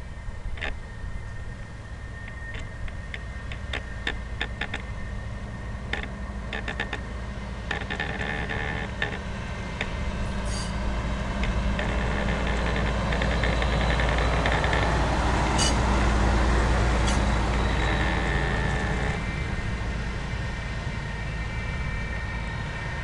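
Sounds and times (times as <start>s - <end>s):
truck engine rumble: 0.0s - 23.0s.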